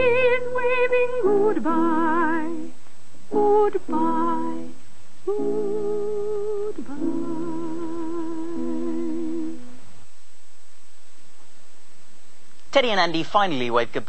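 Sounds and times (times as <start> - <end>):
person singing with vibrato: 0.0 - 9.8.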